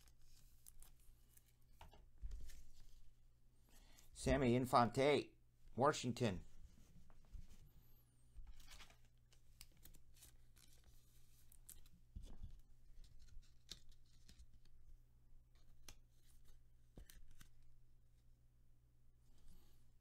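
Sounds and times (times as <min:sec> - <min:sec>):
trading cards rustling and clicking: 0:08.4 - 0:14.8, 0:15.6 - 0:17.6.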